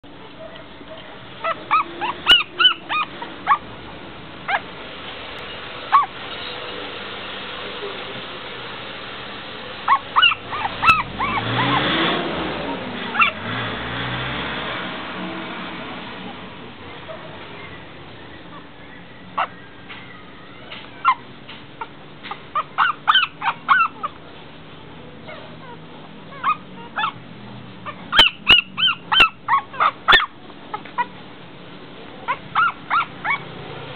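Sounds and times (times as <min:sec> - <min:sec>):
puppies whimpering: 0:00.4 - 0:03.7, 0:05.9 - 0:06.2, 0:09.9 - 0:11.9, 0:12.6 - 0:13.4, 0:16.9 - 0:24.2, 0:25.2 - 0:27.2, 0:27.8 - 0:31.2, 0:32.2 - 0:33.4.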